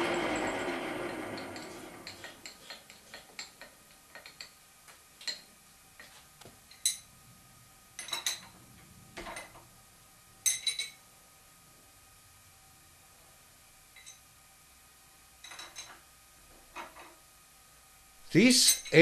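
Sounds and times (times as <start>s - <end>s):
metal clinking on metal: 0.0s - 4.6s, 6.7s - 7.1s, 8.0s - 8.6s, 10.4s - 11.0s, 14.0s - 14.2s, 15.4s - 16.0s, 18.6s - 19.0s.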